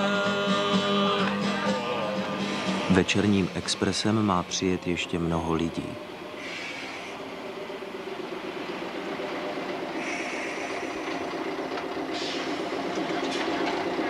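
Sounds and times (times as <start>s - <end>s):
diesel railcar engine humming: 0.0s - 14.0s
brief hiss: 12.1s - 12.6s.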